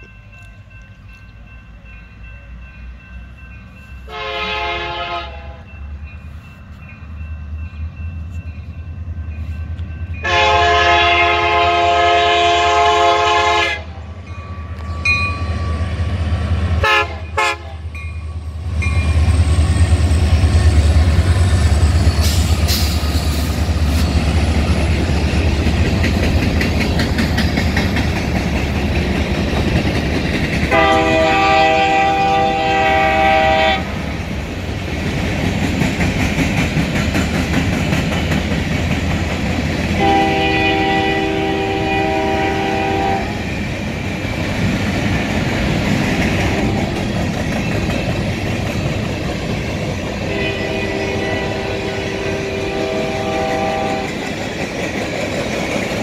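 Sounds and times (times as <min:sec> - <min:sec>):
diesel locomotive rumble: 0:00.0 - 0:56.0
locomotive air horn: 0:04.1 - 0:05.7, 0:10.2 - 0:14.0, 0:16.8 - 0:17.9, 0:30.7 - 0:34.0, 0:40.0 - 0:43.4, 0:46.4 - 0:47.0, 0:50.2 - 0:54.2.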